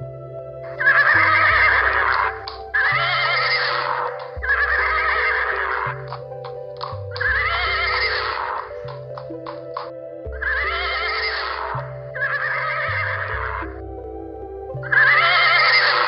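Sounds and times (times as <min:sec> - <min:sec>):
background music with low chords: 0:00.0 - 0:16.0
horse whinnying: 0:00.7 - 0:05.9, 0:10.4 - 0:13.6, 0:14.9 - 0:16.0.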